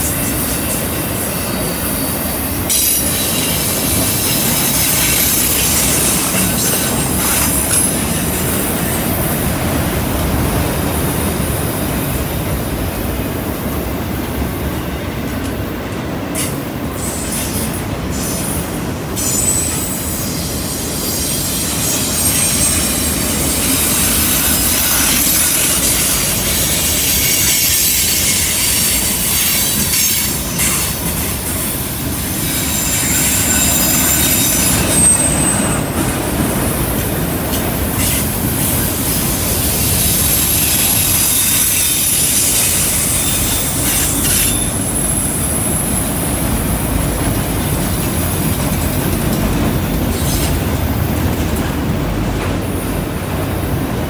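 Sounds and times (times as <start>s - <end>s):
steel wheels rumbling on rail: 0.0s - 54.0s
wheel flange squeals: 16.4s - 36.2s, 37.6s - 46.0s.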